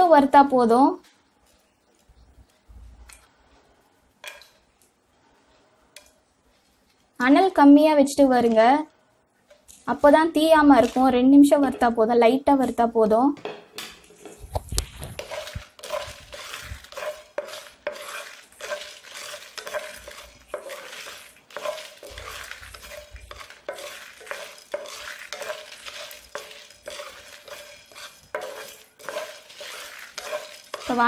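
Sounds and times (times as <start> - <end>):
spices scraping and rattling in pan: 9.5 - 12.1, 13.7 - 31.0.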